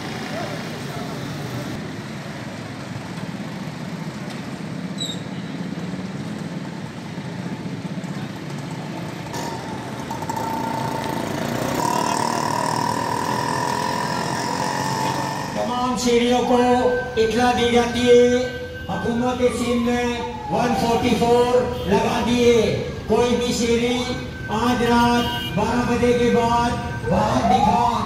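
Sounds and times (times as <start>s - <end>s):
steady high tone: 9.4s - 19.5s.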